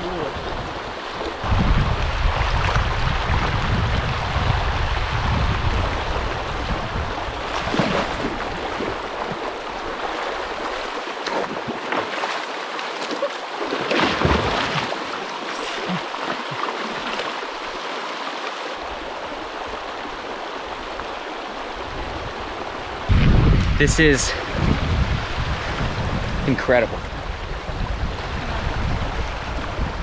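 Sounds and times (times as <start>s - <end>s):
river water flowing: 0.0s - 23.2s.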